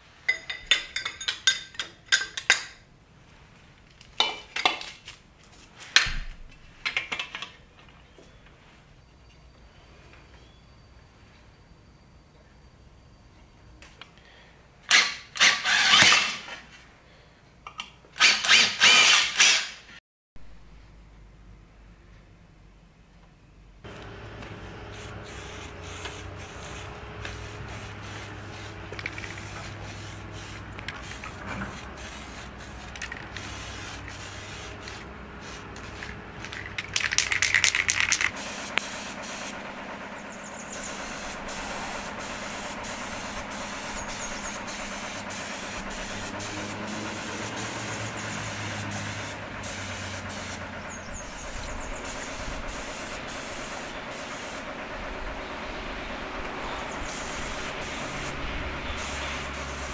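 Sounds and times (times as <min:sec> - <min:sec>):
spraying hiss: 0:24.0 - 0:36.5, 0:38.1 - 0:39.6, 0:40.6 - 0:54.7, 0:56.9 - 0:59.9.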